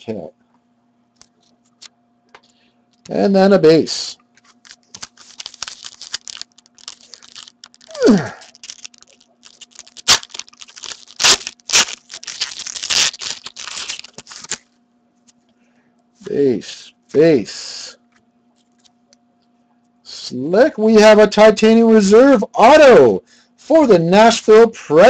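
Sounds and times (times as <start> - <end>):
foil wrapper tearing and crinkling: 4.4 - 14.7
short falling voice sound: 7.9 - 8.4.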